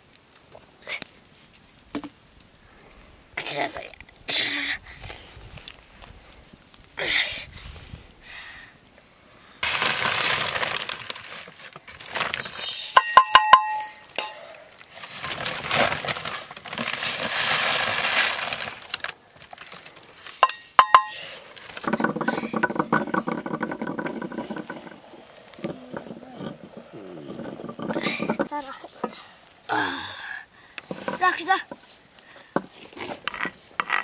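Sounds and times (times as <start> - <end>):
rushing hiss: 12.4 - 13.0
metal cookware clinking: 13.0 - 14.5, 20.4 - 21.2.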